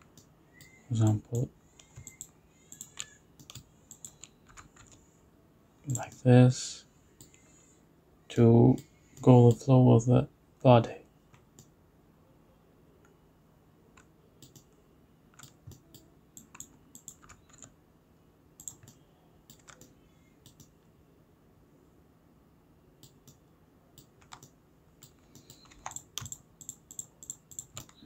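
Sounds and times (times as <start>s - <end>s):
computer mouse clicks: 0.0s - 5.0s, 14.0s - 17.7s, 18.6s - 20.7s, 23.0s - 23.4s, 24.0s - 28.0s
computer keyboard clicks: 1.3s - 5.0s, 14.0s - 14.7s, 15.4s - 17.7s, 18.6s - 20.7s, 24.0s - 28.0s.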